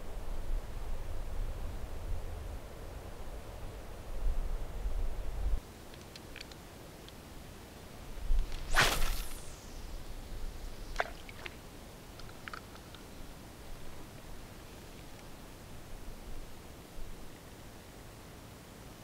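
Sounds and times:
fishing rod swish: 8.5 - 9.9.

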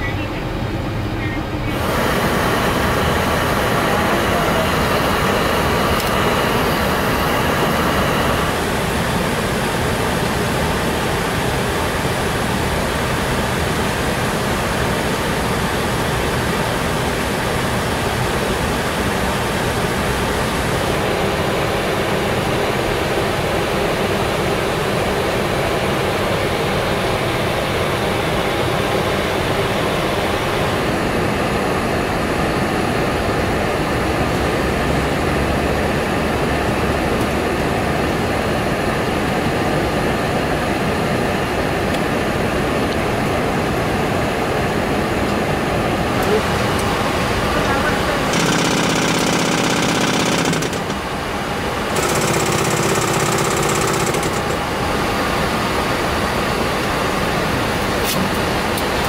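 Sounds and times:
rushing air noise: 0.0 - 16.0.

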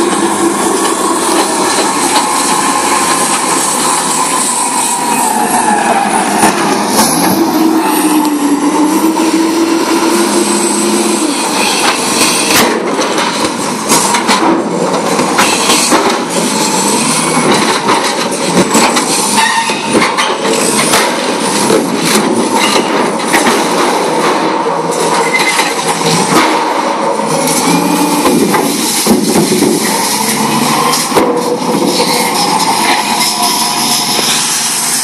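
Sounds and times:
high metal squeals: 0.0 - 12.7, 19.1 - 20.9, 25.1 - 25.8, 27.2 - 28.3, 29.8 - 35.0
loader engine running: 0.0 - 35.0
steel pipes clanking and scraping: 0.0 - 35.0.

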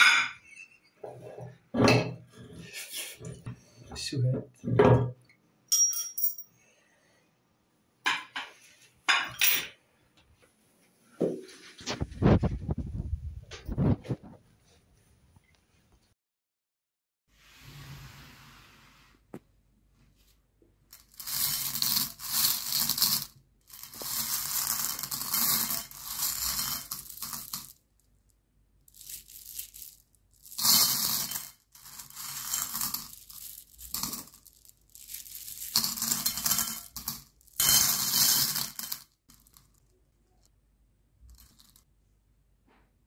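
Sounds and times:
candies clattering on a plate: 20.9 - 27.9, 28.9 - 40.5, 41.2 - 41.9.

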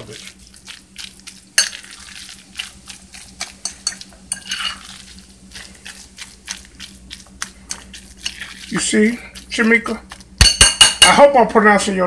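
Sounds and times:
fork mashing mixture: 0.0 - 11.5
fork scraping glass bowl: 1.2 - 9.7.

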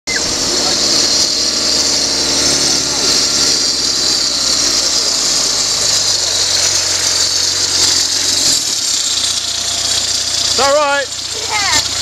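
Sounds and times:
off-road truck engine running: 0.0 - 12.0.

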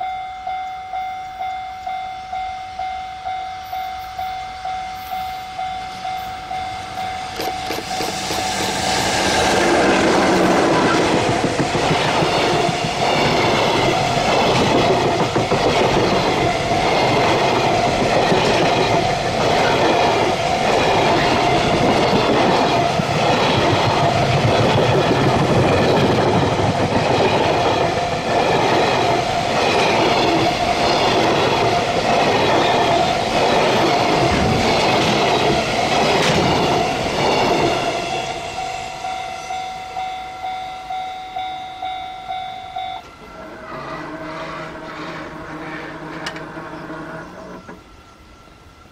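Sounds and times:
level crossing warning bell: 0.0 - 8.5, 38.3 - 43.5
train passing at speed: 0.0 - 48.9
wheels clacking over rail joints: 7.0 - 37.9, 43.0 - 47.9.

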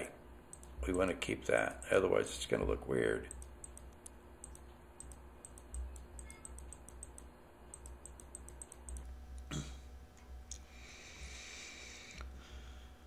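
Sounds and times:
computer mouse clicks: 0.5 - 0.8, 3.3 - 9.1
breathing: 10.6 - 13.0.

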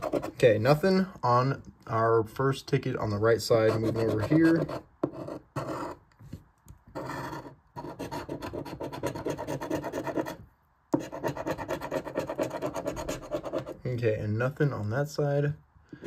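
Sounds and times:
coin scratching lottery ticket: 3.6 - 6.0, 7.0 - 10.4, 11.0 - 13.8.

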